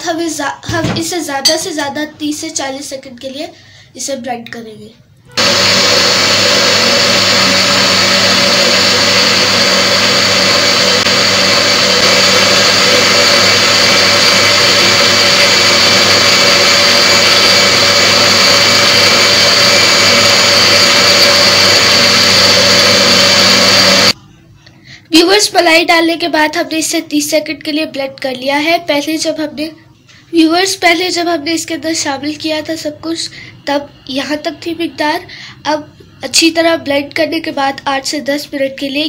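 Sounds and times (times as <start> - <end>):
blender motor running: 5.4 - 24.2.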